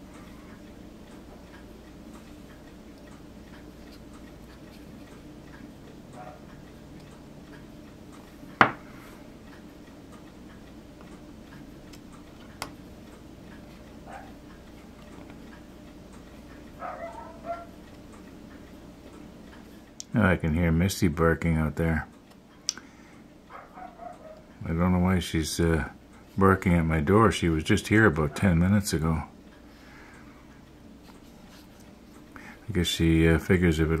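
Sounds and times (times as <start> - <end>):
faint steady ticking: 0.0 - 34.0
distant dog barking: 6.1 - 6.6, 14.0 - 14.4, 16.8 - 17.8, 23.5 - 24.5, 28.3 - 28.6.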